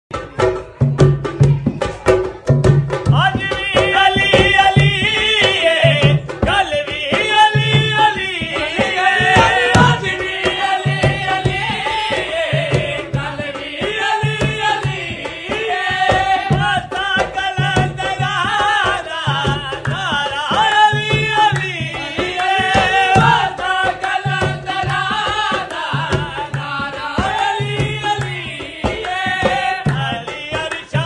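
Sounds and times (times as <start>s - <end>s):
steady drum accompaniment: 0.1s - 31.0s
solo voice singing: 3.1s - 31.0s.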